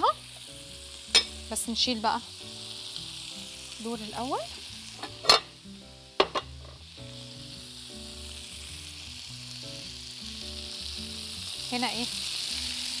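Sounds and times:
meat sizzling in oil: 0.0s - 13.0s
metal tongs clacking on pan: 1.1s - 1.4s, 5.0s - 5.5s.

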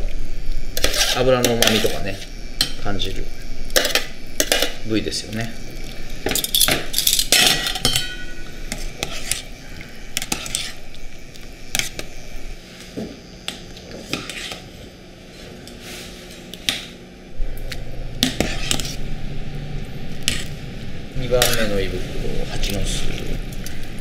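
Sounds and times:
metal tongs clinking on pot: 6.3s - 8.5s
low hum: 14.7s - 24.0s.

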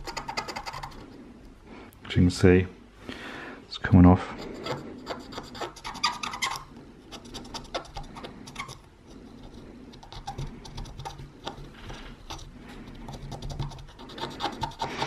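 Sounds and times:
cotton swab scrubbing metal: 0.0s - 1.2s, 4.4s - 15.0s.

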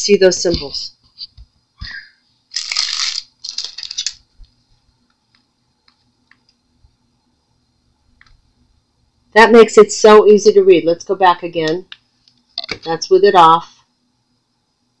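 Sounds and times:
plastic film crinkling: 2.5s - 4.2s.

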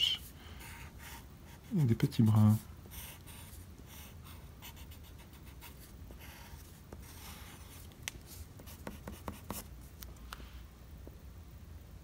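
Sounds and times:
pencil scratching on paper: 0.6s - 9.7s.

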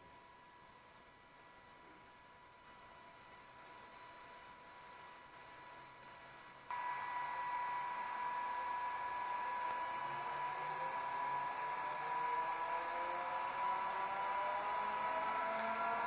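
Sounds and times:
electric motor whine and hiss: 6.7s - 16.0s.

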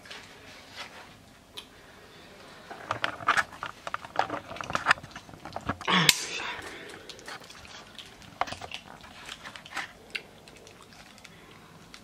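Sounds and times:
paper food wrappers crinkling: 2.6s - 12.0s.

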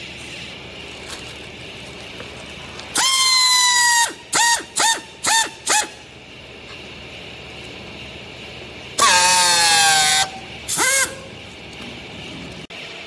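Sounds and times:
air tool blasts whistling: 2.9s - 6.1s, 9.0s - 11.4s.

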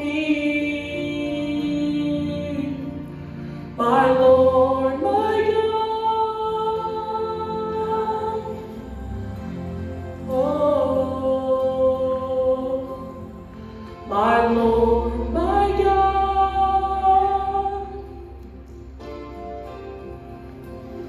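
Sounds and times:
man singing a hymn: 14.1s - 17.8s.

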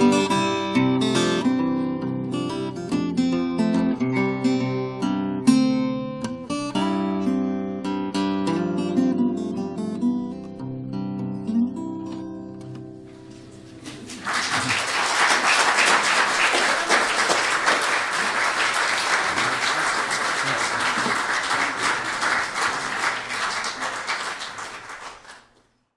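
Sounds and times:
audience applause: 13.8s - 25.7s.

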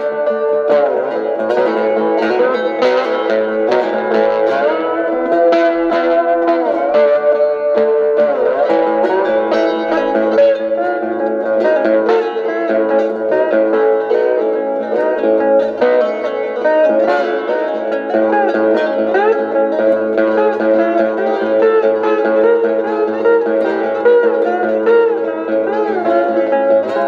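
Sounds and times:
twangy plucked guitar: 0.0s - 27.0s.

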